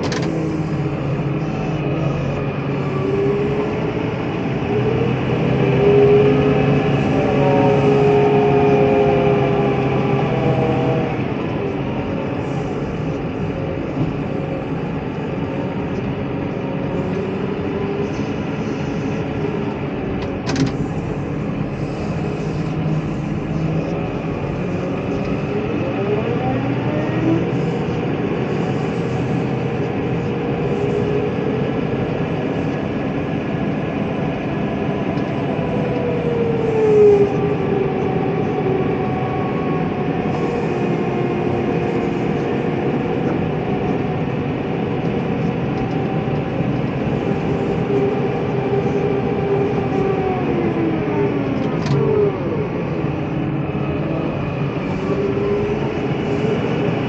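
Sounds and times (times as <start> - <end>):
tractor engine under load: 0.0 - 36.7
whining tones: 0.0 - 57.0.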